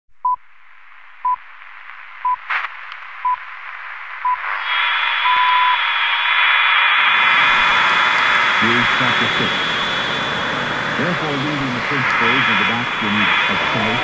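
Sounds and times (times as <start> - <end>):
crackle of noise: 0.2 - 14.0
static hiss: 0.4 - 14.0.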